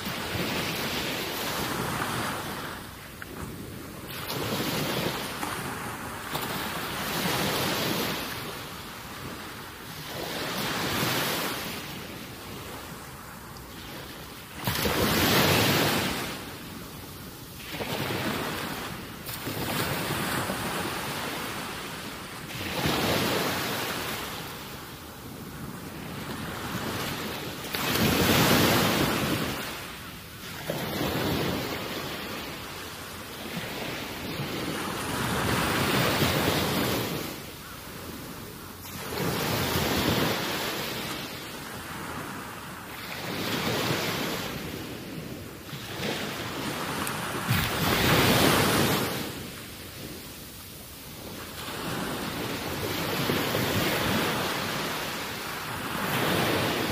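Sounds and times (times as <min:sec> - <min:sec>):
water at shoreline: 0:00.0 - 0:56.9.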